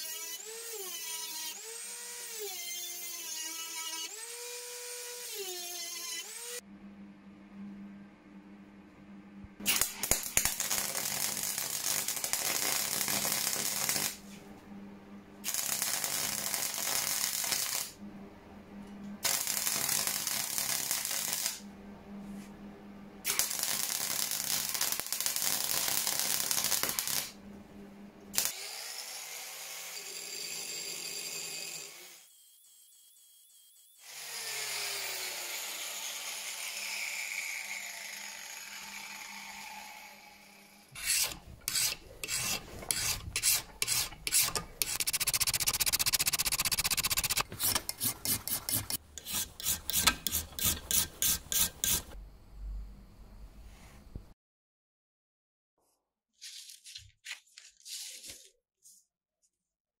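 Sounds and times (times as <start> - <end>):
workshop sound: 2.9 - 24.2, 40.9 - 52.3
welding arc crackling: 9.7 - 14.2, 15.4 - 18.0, 19.2 - 21.6, 23.3 - 27.4, 41.0 - 52.2.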